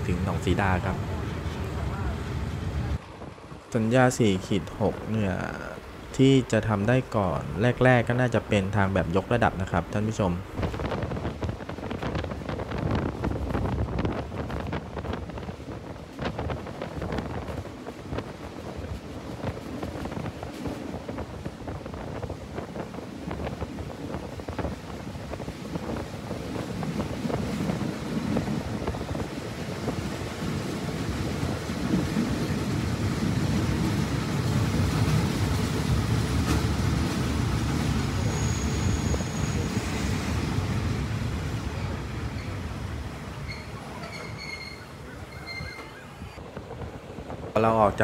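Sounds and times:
train wheels rumbling: 9.7 - 48.0
high squeal: 38.2 - 40.2, 43.4 - 46.4.

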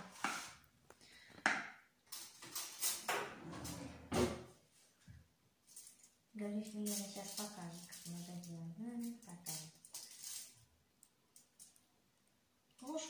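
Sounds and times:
cookies moved on metal baking tray: 6.7 - 10.6.

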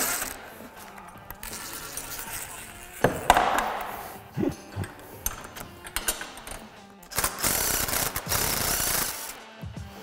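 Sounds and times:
metal hardware clinking: 4.6 - 6.9.

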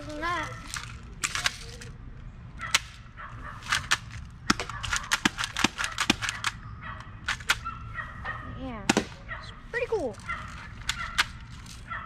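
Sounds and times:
toy pistol clicking and snapping: 3.7 - 6.6, 7.2 - 7.7.

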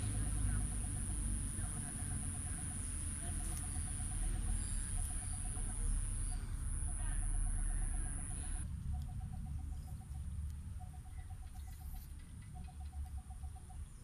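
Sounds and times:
insect pulsing chirp: 0.0 - 10.2
insects high-pitched whine: 0.0 - 14.0.

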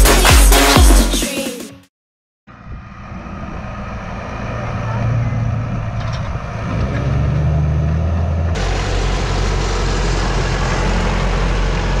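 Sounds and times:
tractor diesel engine running: 2.5 - 12.0
deeper tractor engine with hiss: 8.6 - 12.0.

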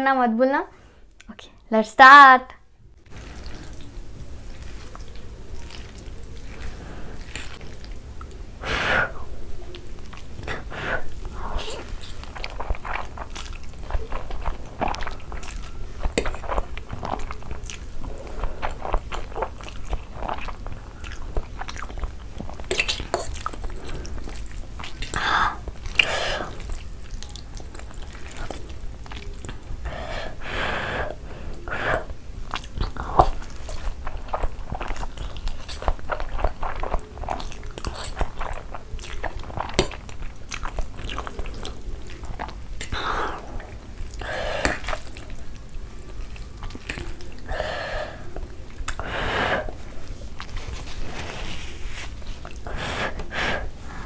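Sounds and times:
chewing and mouth smacking: 3.1 - 8.4, 9.6 - 10.6, 11.5 - 29.8, 32.4 - 47.5, 48.3 - 49.1, 50.0 - 51.0.

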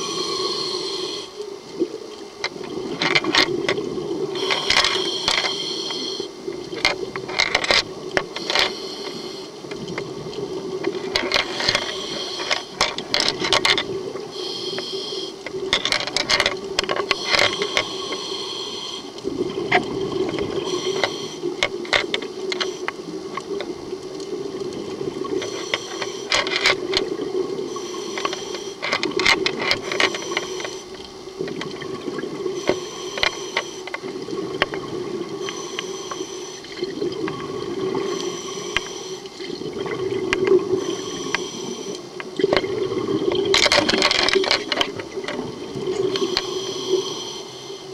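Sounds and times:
diver breathing through regulator: 0.0 - 1.4, 4.3 - 6.4, 7.6 - 9.7, 11.2 - 16.4, 17.0 - 19.2, 20.4 - 22.0, 25.3 - 26.8, 27.6 - 31.0, 32.5 - 34.0, 35.3 - 36.8, 37.6 - 39.4, 40.6 - 42.2, 46.1 - 47.9
crackling exhaust bubbles: 0.0 - 47.9.

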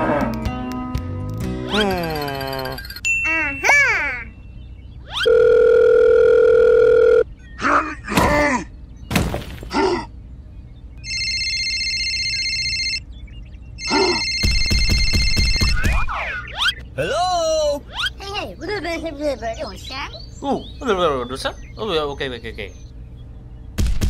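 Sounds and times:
squeaky sped-up gibberish voice: 1.7 - 4.4, 15.8 - 20.2
electronic phone ringtone: 2.1 - 3.3, 5.2 - 7.3, 11.0 - 13.1, 13.8 - 16.0
phone dial tone: 5.2 - 7.3, 11.0 - 13.0, 13.8 - 15.8.

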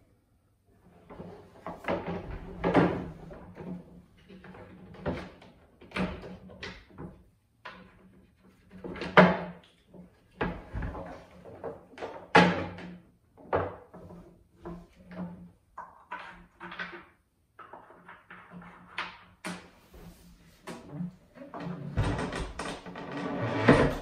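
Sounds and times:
wooden clunks and knocks: 1.2 - 8.0, 20.6 - 24.0.

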